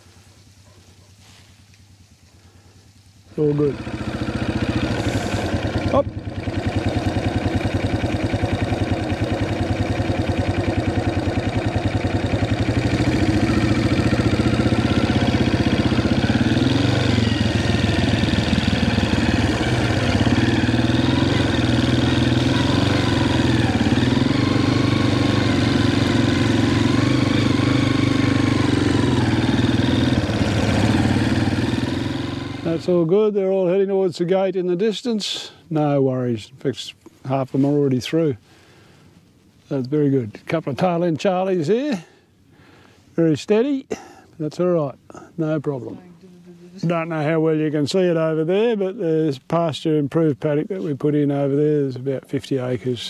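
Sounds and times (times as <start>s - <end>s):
quad bike engine running: 3.3s - 33.8s.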